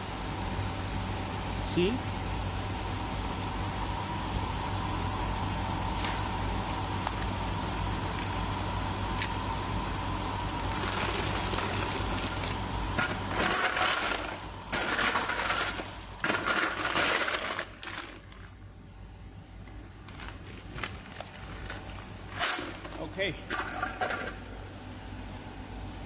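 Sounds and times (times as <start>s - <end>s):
ice machine humming: 0.0s - 26.0s
ice cubes clattering and crunching: 10.7s - 18.6s, 20.0s - 24.4s.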